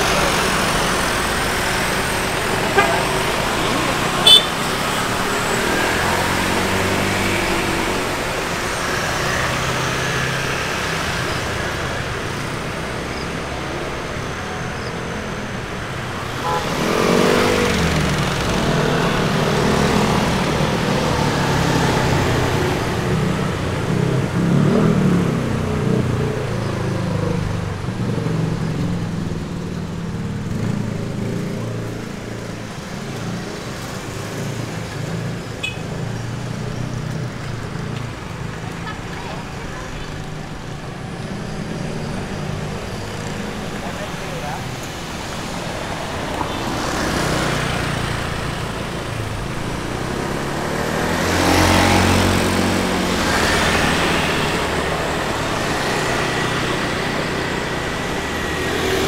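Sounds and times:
street traffic passing: 0.0 - 59.0
vehicle engine passing close: 36.4 - 59.0.

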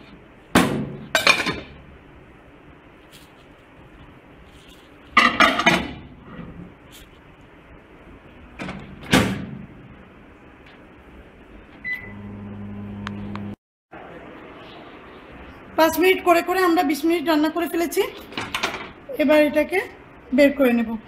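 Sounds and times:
microwave oven humming: 11.4 - 13.6
keypad beep: 11.8 - 12.2.

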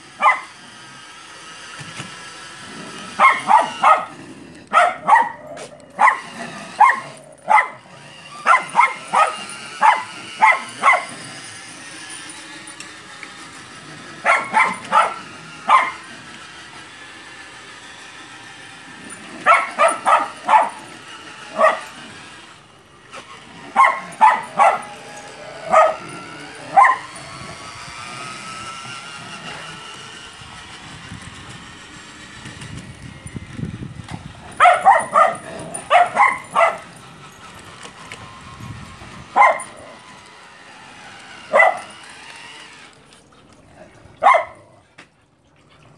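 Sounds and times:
dog barking: 0.2 - 0.5, 3.2 - 4.1, 4.7 - 7.8, 8.4 - 11.1, 14.2 - 16.0, 19.5 - 20.8, 21.6 - 21.9, 23.8 - 24.9, 26.7 - 27.1, 34.6 - 36.8, 39.4 - 39.7, 41.5 - 41.9, 44.2 - 44.6.

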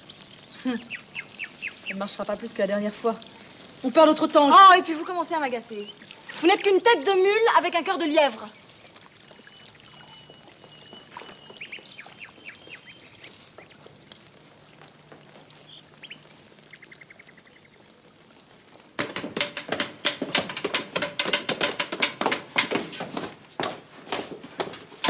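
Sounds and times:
faint bird chirps: 8.5 - 13.7
bird trill: 9.3 - 13.2
rapid clicks and knocks: 19.0 - 23.4.

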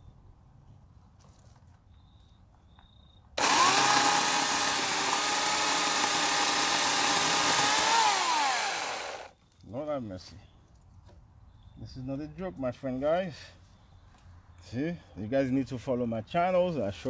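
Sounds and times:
electric chainsaw whining: 3.4 - 9.3.

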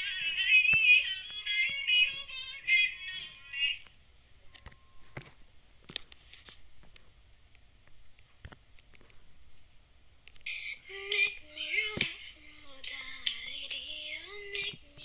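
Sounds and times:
music with high singing voice: 0.0 - 3.9, 10.5 - 15.0.

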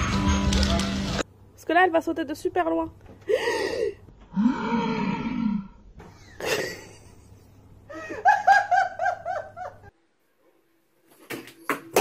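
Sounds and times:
person laughing: 6.2 - 9.9.

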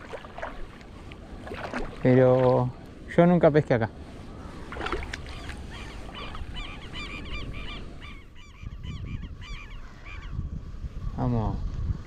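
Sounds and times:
wind rumble on microphone: 0.0 - 12.0
flock of birds calling: 5.2 - 10.4.

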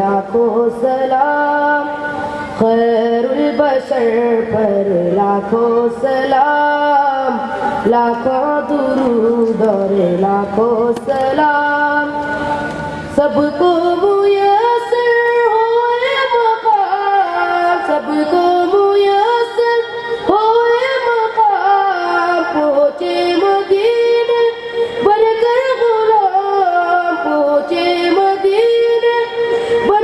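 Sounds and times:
boy singing into a microphone: 0.0 - 30.0.

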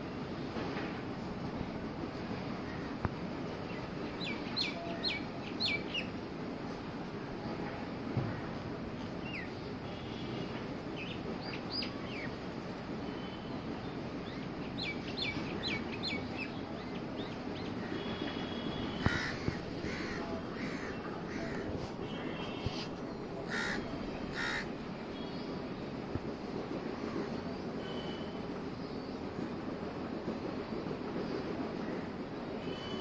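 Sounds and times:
low background noise: 0.0 - 33.0
small birds chirping: 13.2 - 19.3
crows cawing: 19.0 - 21.7, 23.5 - 24.7.

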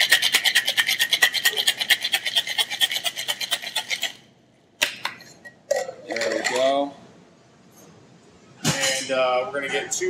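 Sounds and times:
ice rattling in cocktail shaker: 0.0 - 4.2.

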